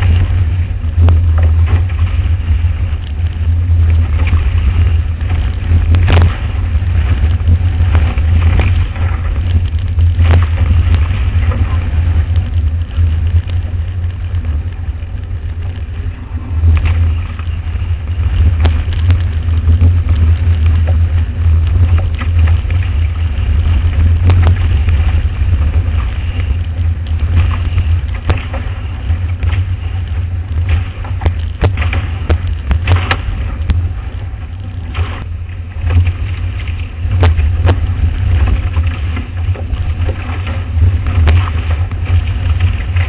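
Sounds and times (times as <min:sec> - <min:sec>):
water rushing past hull: 0:00.0 - 0:43.0
wind buffeting microphone: 0:00.0 - 0:43.0.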